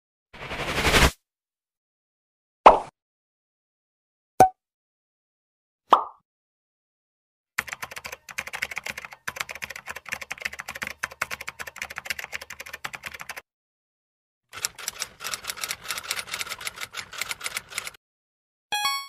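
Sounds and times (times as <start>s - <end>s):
fast keyboard typing: 7.6s - 13.4s, 14.5s - 18.0s.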